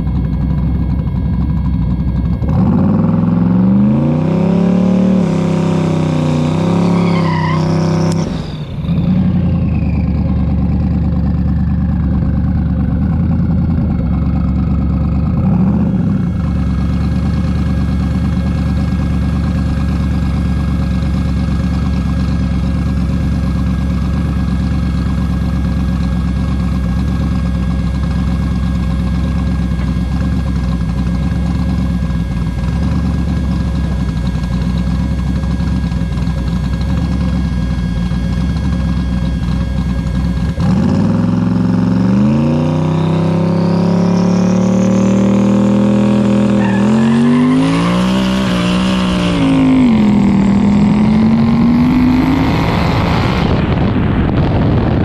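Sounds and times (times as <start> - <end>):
car engine idling and revving: 0.0 - 55.0
whine winding down: 29.4 - 55.0.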